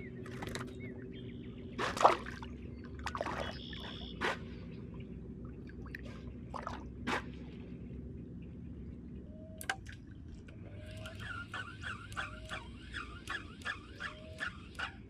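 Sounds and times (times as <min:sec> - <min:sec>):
water splashing: 0:01.8 - 0:04.5, 0:05.5 - 0:07.8.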